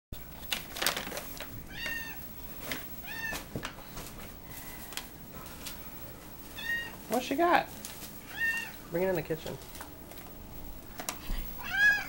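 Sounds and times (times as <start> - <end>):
cat meowing: 1.7 - 2.2, 3.0 - 3.4, 6.6 - 7.0, 8.3 - 8.8, 11.6 - 12.0.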